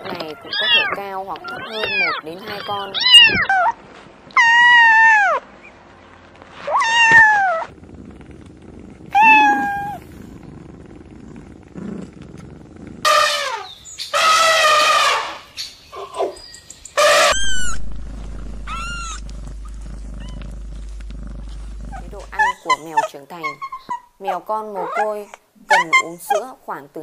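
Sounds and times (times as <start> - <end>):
kittens meowing: 0.2 - 3.8, 6.7 - 7.7, 9.1 - 10.0.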